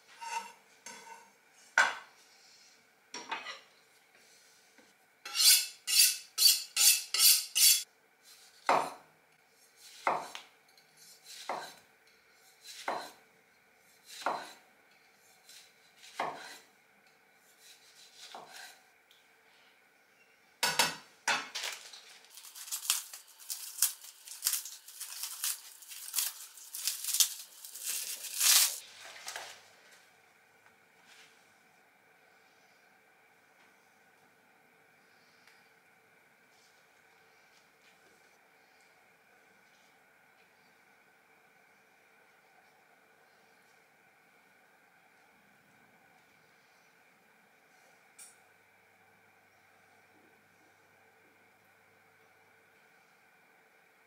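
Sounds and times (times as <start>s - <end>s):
knife cutting tomato on wooden board: 14.0s - 14.6s, 15.4s - 16.7s, 17.6s - 18.8s
lettuce leaves tearing: 21.6s - 28.8s.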